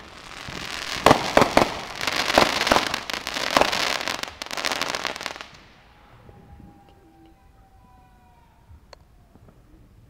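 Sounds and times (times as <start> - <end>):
fireworks crackling: 0.0 - 6.0
fireworks bangs: 0.0 - 7.0.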